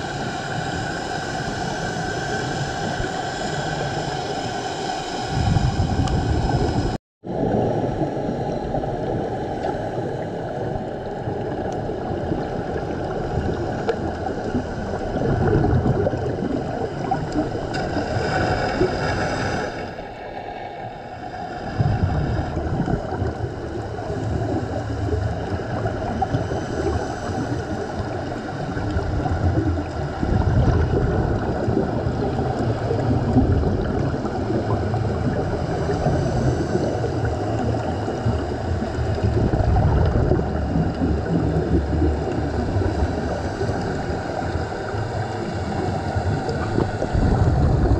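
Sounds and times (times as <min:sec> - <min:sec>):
regulator hissing inhalation: 0:00.0 - 0:07.0
underwater exhaled bubbles gurgling: 0:00.0 - 0:47.9.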